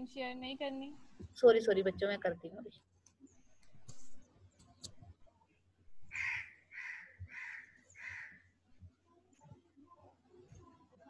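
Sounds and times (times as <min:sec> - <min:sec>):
crow cawing: 0:06.1 - 0:08.4.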